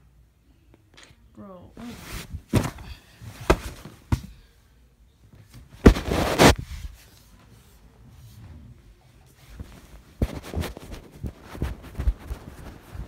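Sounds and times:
cloth scuffling: 1.8 - 4.3, 5.5 - 7.7, 9.2 - 13.0.

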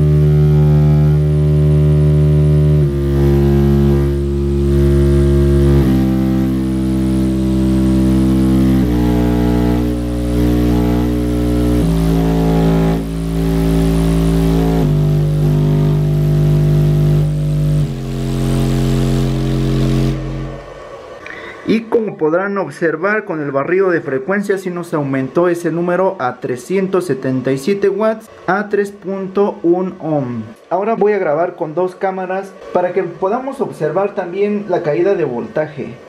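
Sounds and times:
buzzy bass tones from subwoofer: 0.0 - 36.0.

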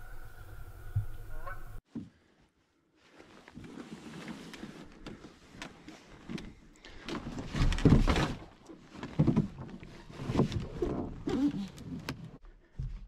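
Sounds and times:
canoe hull knocks and clunks: 7.2 - 11.5.

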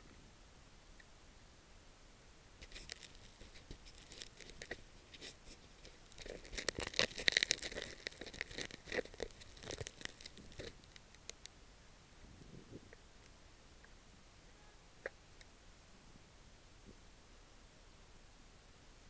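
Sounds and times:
camera rubbing against clothing: 2.6 - 11.0.

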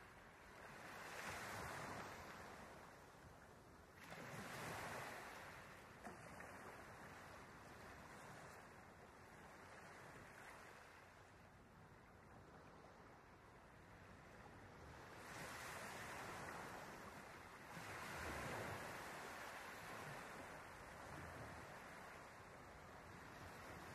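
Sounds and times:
faint ocean water wash: 0.0 - 23.9.

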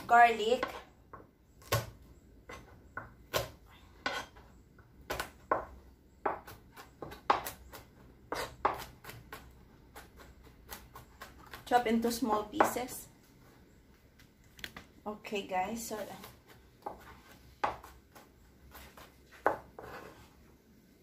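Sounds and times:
knife chopping on cutting board: 5.1 - 11.6, 16.2 - 20.1.

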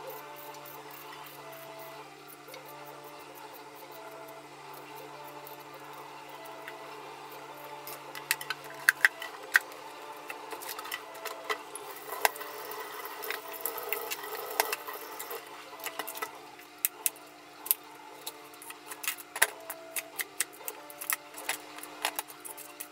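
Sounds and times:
knife peeling root vegetables: 13.2 - 22.9.

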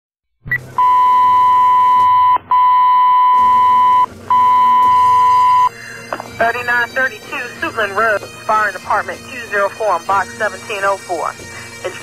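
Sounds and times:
short high beep: 0.8 - 5.7
steady radio alert tone: 0.8 - 12.0.

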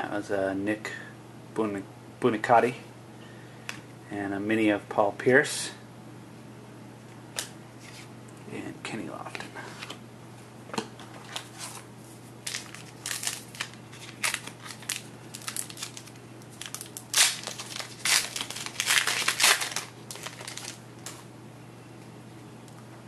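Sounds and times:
plastic wrapper crinkling: 12.4 - 21.2.

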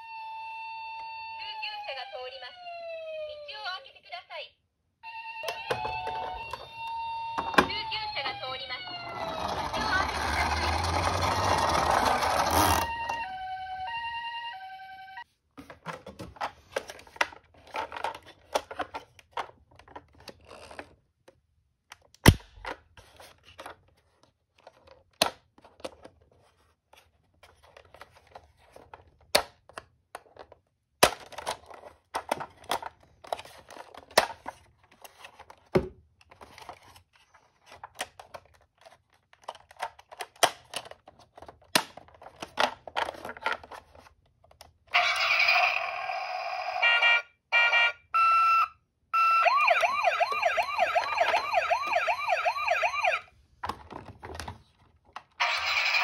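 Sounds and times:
rustling and scraping on cardboard: 23.0 - 24.8.

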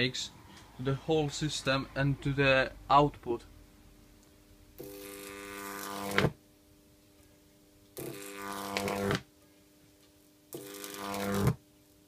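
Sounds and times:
electric arc buzzing with hiss: 4.7 - 6.4, 7.9 - 9.3, 10.5 - 12.0.

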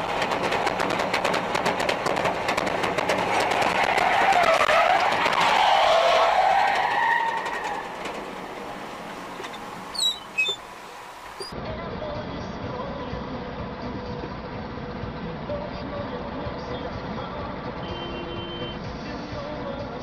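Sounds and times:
rapid clicking rattle: 0.0 - 4.4
road noise: 0.0 - 20.0
tyres squealing under braking: 3.7 - 11.6.

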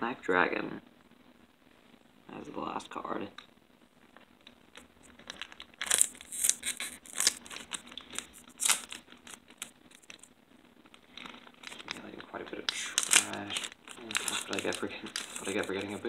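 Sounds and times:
wrapper crinkling and tearing: 4.2 - 16.0.

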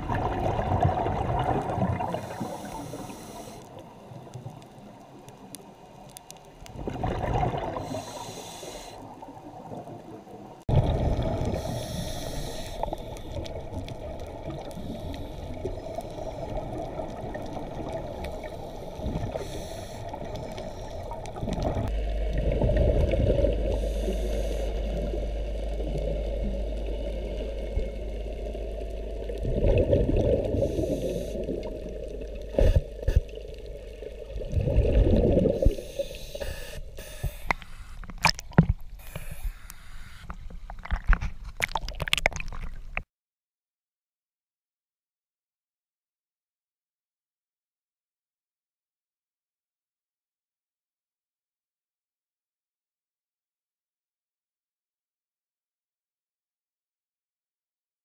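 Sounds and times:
bubbles gurgling underwater: 0.0 - 3.1, 6.7 - 8.1, 9.1 - 11.8, 12.9 - 35.9
muffled water wash: 0.0 - 39.0
diver breathing through regulator: 2.0 - 3.8, 7.7 - 9.2, 11.3 - 13.5, 18.3 - 22.2, 23.4 - 25.4, 30.4 - 31.8, 35.4 - 38.3, 39.0 - 40.4
steady low hum: 11.4 - 34.4.

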